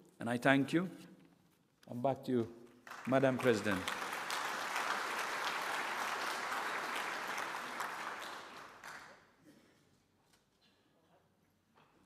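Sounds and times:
audience applauding: 0:02.8 - 0:09.3.

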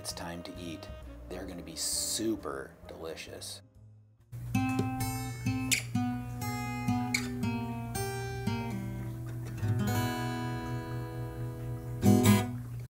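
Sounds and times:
strummed guitar chords: 0:03.8 - 0:12.8
picked acoustic guitar: 0:04.3 - 0:12.9.

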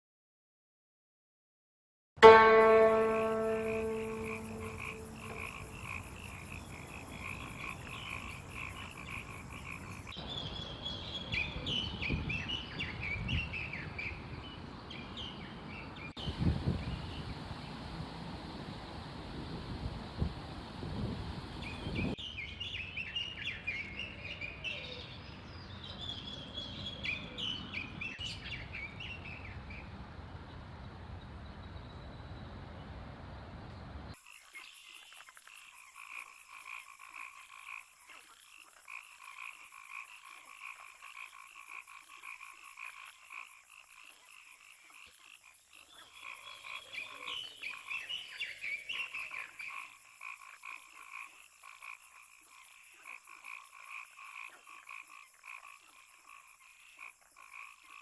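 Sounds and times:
frogs calling: 0:02.2 - 0:10.2, 0:34.2 - 0:58.0
small birds chirping: 0:02.6 - 0:17.8
wind rumble on microphone: 0:11.3 - 0:14.7, 0:15.6 - 0:22.2.

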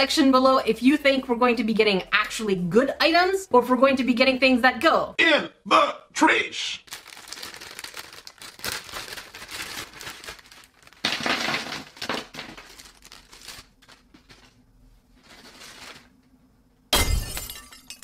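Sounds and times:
crinkling plastic packaging: 0:06.8 - 0:16.4.

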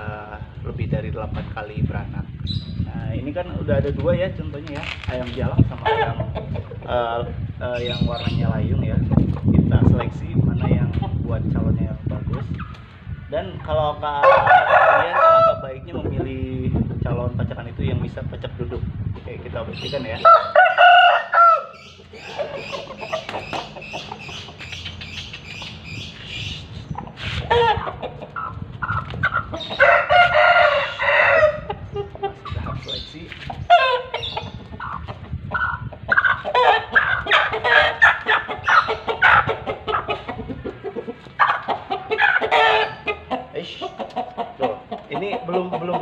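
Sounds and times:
chickens clucking: 0:02.8 - 0:17.2, 0:17.9 - 0:46.0
chicken drawn-out call: 0:27.2 - 0:32.8, 0:33.7 - 0:40.4, 0:41.4 - 0:45.3.

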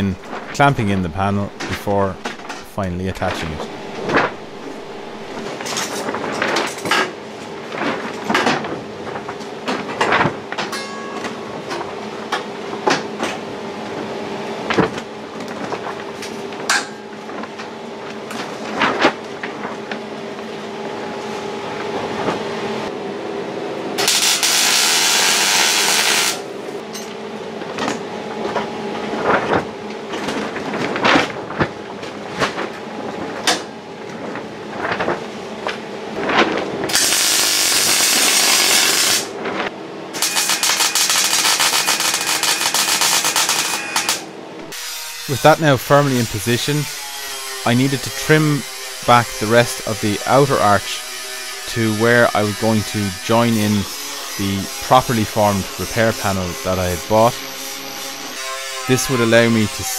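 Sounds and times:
welding hiss and crackle: 0:24.0 - 0:26.4, 0:36.9 - 0:39.3, 0:40.2 - 0:44.2.

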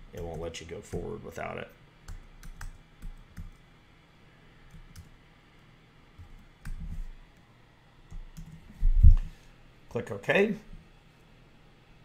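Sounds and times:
computer keyboard keystrokes: 0:02.1 - 0:03.6, 0:04.7 - 0:05.1, 0:08.1 - 0:08.6.

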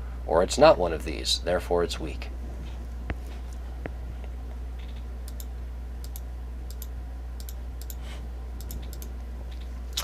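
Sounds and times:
steady low hum: 0:00.0 - 0:10.0
computer control clicks: 0:04.8 - 0:08.0, 0:08.6 - 0:09.7.

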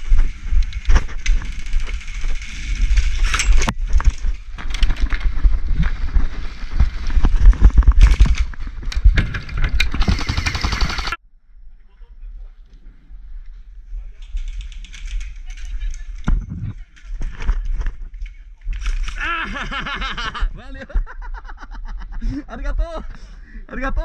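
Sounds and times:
helmet camera rumble and knocks: 0:03.0 - 0:10.3
airsoft guns firing: 0:09.9 - 0:11.2.

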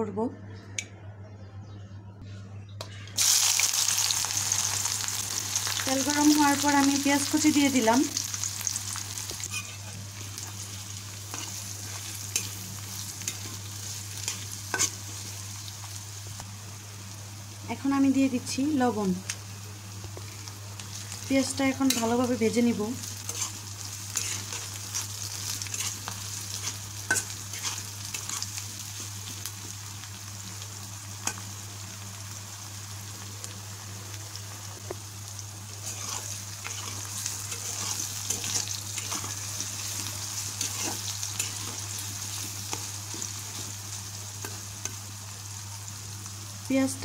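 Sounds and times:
onions sizzling in hot oil: 0:03.2 - 0:47.0
metal spatula scraping a pan: 0:09.4 - 0:09.9, 0:23.2 - 0:28.5, 0:35.8 - 0:39.8.

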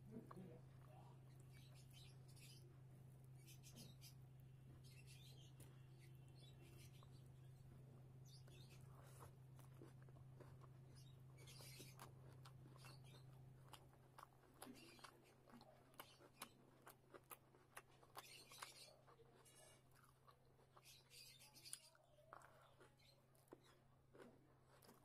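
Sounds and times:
steady low hum: 0:00.0 - 0:15.8.

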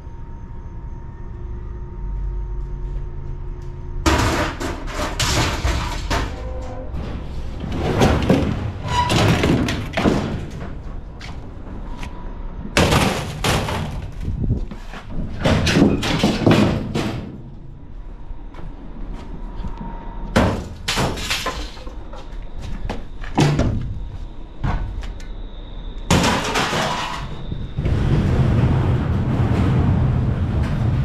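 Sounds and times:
metal cabinets clanging onto scrap: 0:04.1 - 0:10.8, 0:12.8 - 0:14.1, 0:15.1 - 0:17.4, 0:20.4 - 0:21.9, 0:26.1 - 0:27.4.

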